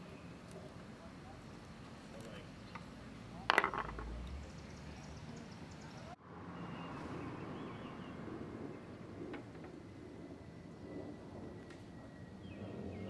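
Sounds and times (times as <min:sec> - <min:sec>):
faint outdoor background noise: 0:00.0 - 0:13.0.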